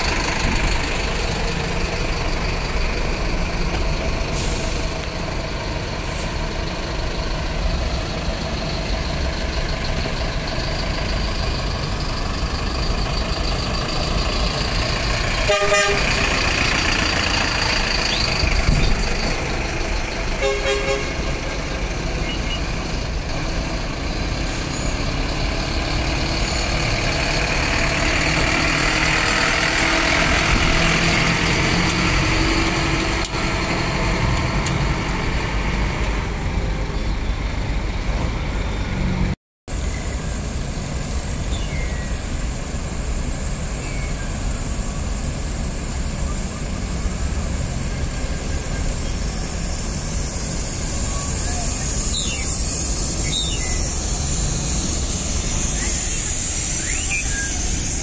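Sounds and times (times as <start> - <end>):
bus diesel engines running: 0.0 - 58.0
short horn toot: 15.5 - 16.3, 20.4 - 21.2.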